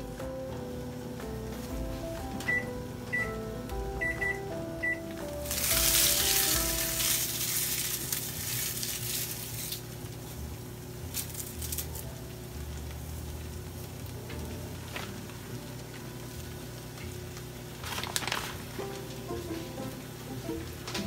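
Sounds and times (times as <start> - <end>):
food sizzling in a frying pan: 5.0 - 21.0.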